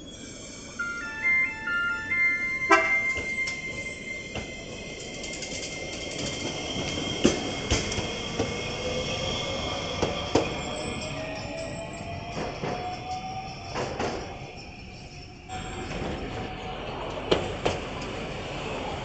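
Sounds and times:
steady high tone: 0.0 - 9.7
tram electronic horn: 0.8 - 5.0.

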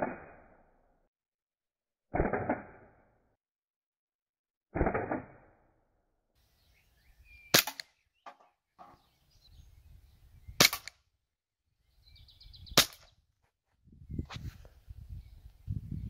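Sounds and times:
airsoft pistol shots: 0.0 - 0.6, 2.1 - 3.0, 4.8 - 5.6, 7.5 - 7.9, 10.6 - 11.0, 12.8 - 13.1.

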